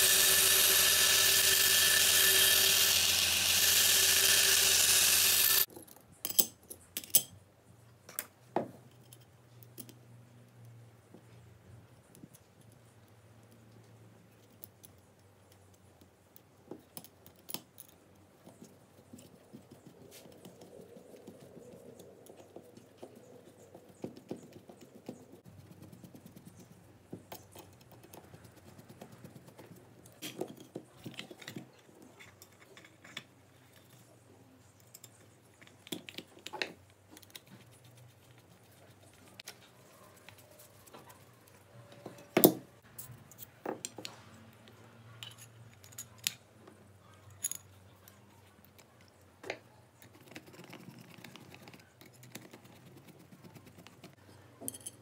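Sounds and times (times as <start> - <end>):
screwdriver clicking on metal: 0.0 - 5.7.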